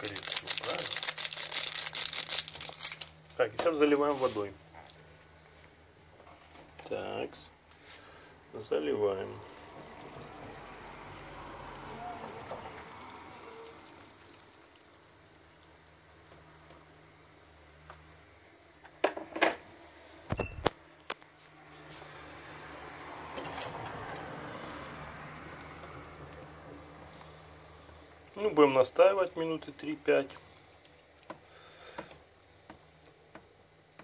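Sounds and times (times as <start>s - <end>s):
water pouring into paper cup: 9.3s - 16.6s.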